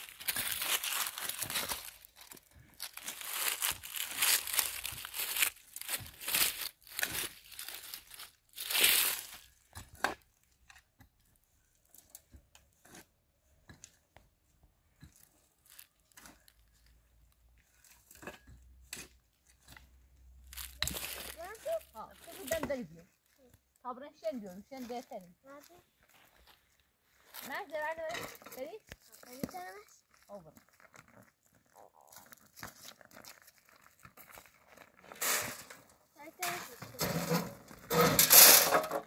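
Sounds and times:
crinkling and tearing: 0.0s - 9.5s, 15.5s - 16.9s, 20.4s - 23.6s, 27.2s - 35.0s.

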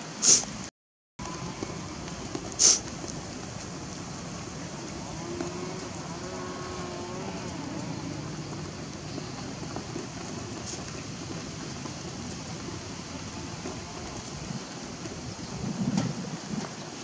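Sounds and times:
steady background hiss: 0.0s - 17.0s
short sharp hiss: 0.1s - 0.6s, 2.6s - 2.9s.

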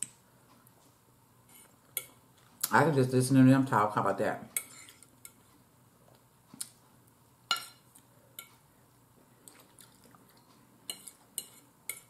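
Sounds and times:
faint chewing: 7.8s - 12.0s.

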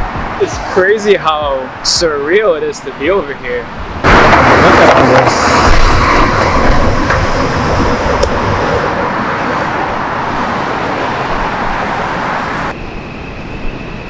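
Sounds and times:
passing cars rushing: 0.0s - 13.3s
city street hum: 0.0s - 14.0s.

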